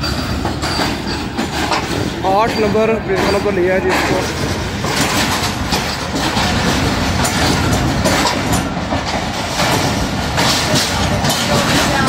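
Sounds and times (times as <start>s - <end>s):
train wheels clacking over rail joints: 0.0s - 12.0s.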